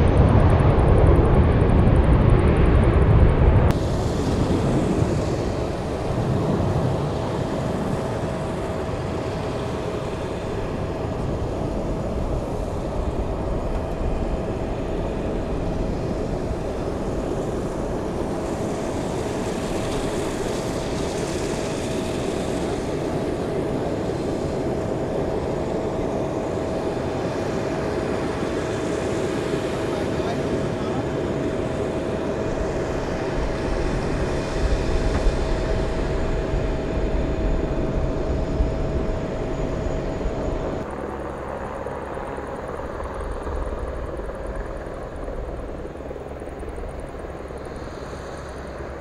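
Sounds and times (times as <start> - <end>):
jet engine rumble and whine: 0.0 - 49.0.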